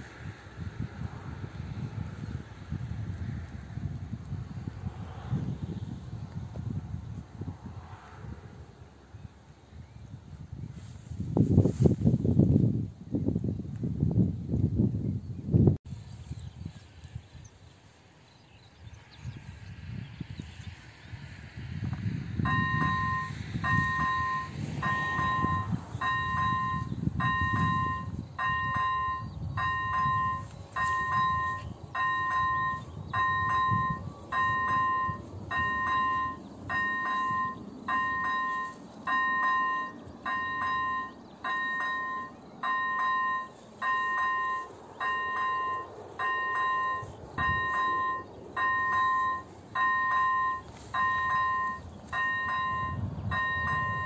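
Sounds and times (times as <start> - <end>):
level crossing electronic bell: 22.5 - 54.0.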